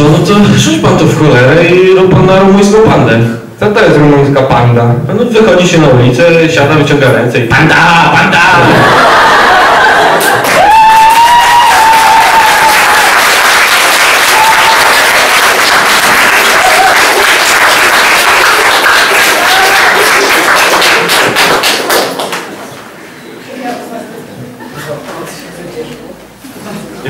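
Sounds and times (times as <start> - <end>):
audience applauding and cheering: 9.1 - 22.7.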